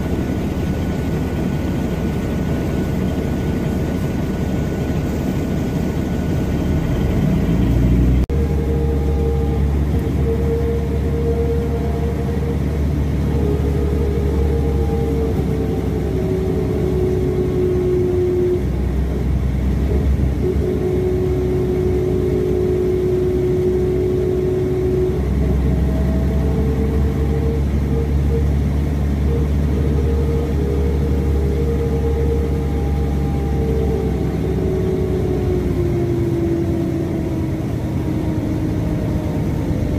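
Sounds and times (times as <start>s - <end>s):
bus diesel engine rumble: 0.0s - 39.9s
drivetrain whine shifting pitch: 0.0s - 39.9s.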